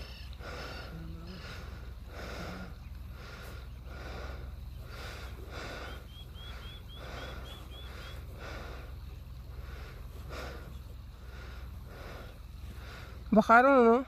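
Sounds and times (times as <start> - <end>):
small bird chirping: 0.0 - 1.8, 2.5 - 9.3
steady low hum: 0.0 - 14.0.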